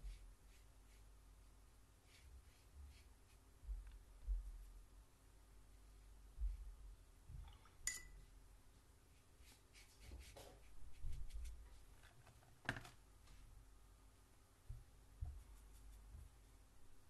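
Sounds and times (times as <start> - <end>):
paintbrush clinking on glass: 7.8 - 8.3.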